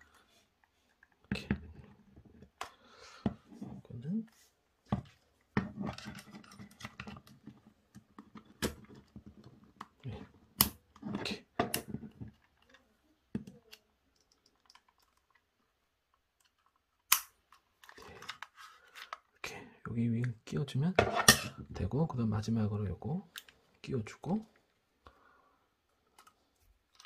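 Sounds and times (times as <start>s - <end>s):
plastic rustling and scraping: 17.7s - 19.4s.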